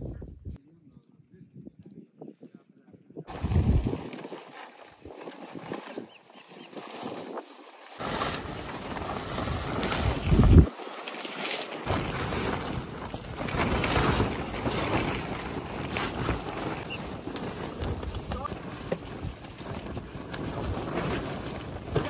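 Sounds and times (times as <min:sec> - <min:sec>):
wind gusting on microphone: 0:00.0 - 0:00.6, 0:01.2 - 0:04.2, 0:05.1 - 0:10.7
plastic tarpaulin flapping: 0:03.3 - 0:22.0.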